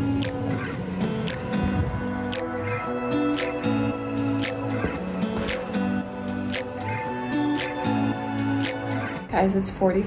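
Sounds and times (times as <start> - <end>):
background music with light beat: 0.0 - 9.9.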